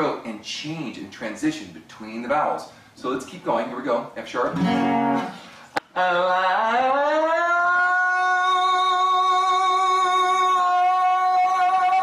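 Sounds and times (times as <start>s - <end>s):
acoustic guitar chord: 4.5s - 5.6s
man singing vowel exercise: 5.8s - 12.0s.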